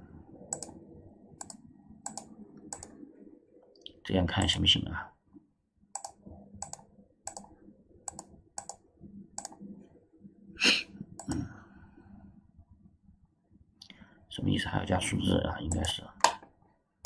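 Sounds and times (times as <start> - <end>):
computer mouse clicking: 0.5 - 0.8, 1.4 - 3.0, 5.9 - 9.6, 11.2 - 11.4, 15.7 - 16.4.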